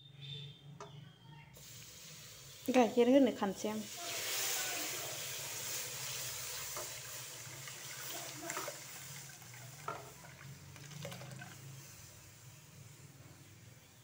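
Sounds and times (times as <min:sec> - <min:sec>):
milk pouring into a pot: 0:06.5 - 0:11.8.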